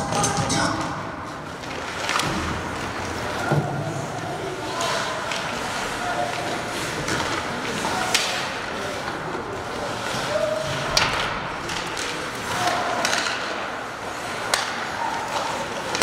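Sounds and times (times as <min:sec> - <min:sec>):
arena noise: 0:00.0 - 0:16.0
stick hitting puck cracks: 0:07.1 - 0:08.6, 0:10.9 - 0:13.6, 0:14.4 - 0:16.0.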